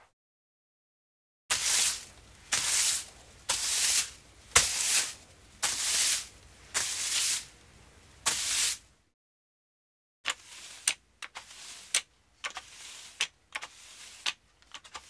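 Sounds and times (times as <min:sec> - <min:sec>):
whisk broom sweeping: 0:01.5 - 0:07.6, 0:08.2 - 0:08.9, 0:10.3 - 0:15.0.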